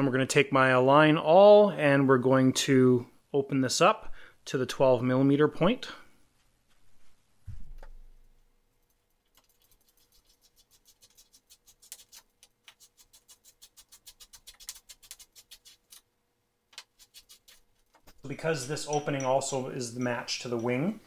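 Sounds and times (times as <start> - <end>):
soft low thump: 7.4 - 8.2.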